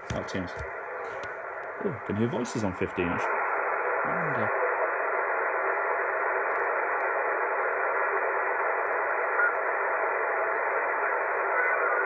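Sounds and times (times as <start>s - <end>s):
faint garbled radio voices: 0.0s - 6.7s, 7.6s - 12.0s
radio static hiss: 0.0s - 12.0s.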